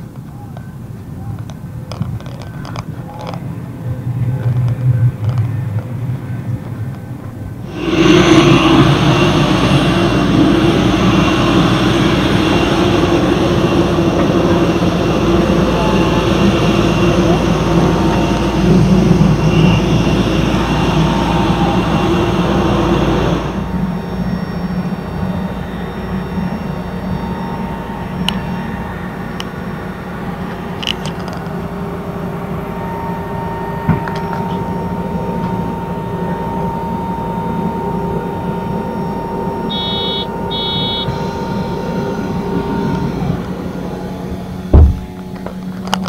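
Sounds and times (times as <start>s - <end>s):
low machinery hum: 0.0s - 46.0s
electronic beeps: 38.6s - 42.2s
heavy thump: 44.7s - 45.2s.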